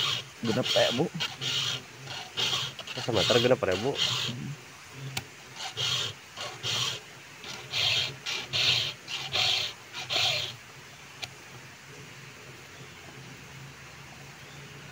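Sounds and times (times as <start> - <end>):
file rasping on chainsaw chain: 0.0 - 4.6, 5.5 - 10.6.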